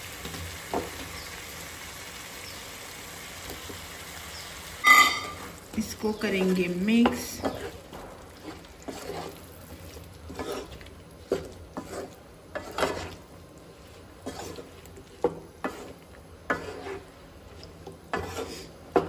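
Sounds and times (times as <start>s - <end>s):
wooden spatula scraping pan: 6.4s - 19.0s.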